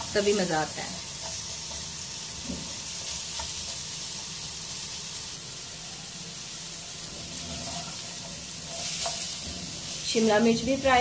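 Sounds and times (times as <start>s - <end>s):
vegetables sizzling in hot oil: 0.0s - 11.0s
spatula scraping pot: 7.1s - 10.1s.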